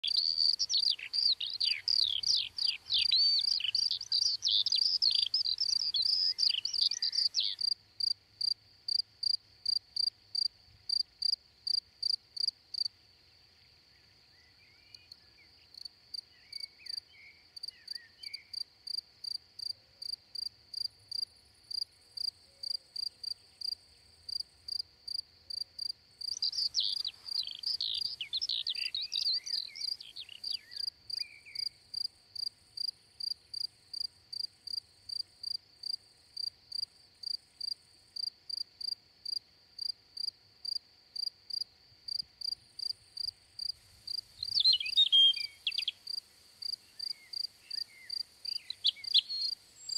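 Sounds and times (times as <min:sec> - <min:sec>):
songbirds singing: 0:00.0 - 0:08.4, 0:12.8 - 0:18.6, 0:26.2 - 0:35.2, 0:42.8 - 0:49.9
crickets chirping: 0:00.0 - 0:49.9.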